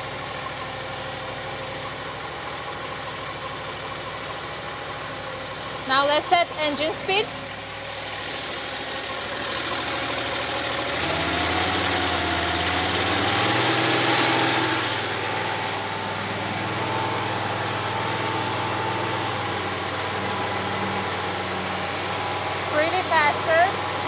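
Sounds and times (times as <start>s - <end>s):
petrol engine revving: 5.8s - 24.0s.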